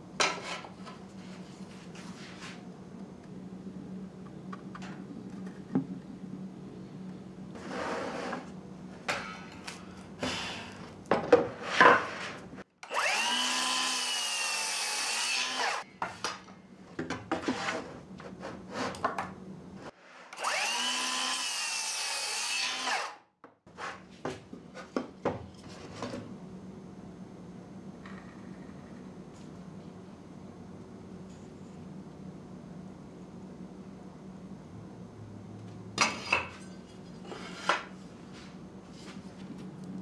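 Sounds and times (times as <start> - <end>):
power tool cutting wood: 12.8 - 15.8, 20.3 - 23.2.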